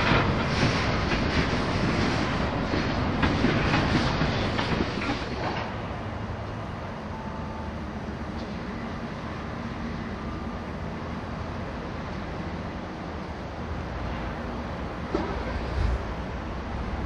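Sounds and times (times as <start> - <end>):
train wheels clacking over joints: 0.0 - 5.8
train rumble: 0.0 - 17.0.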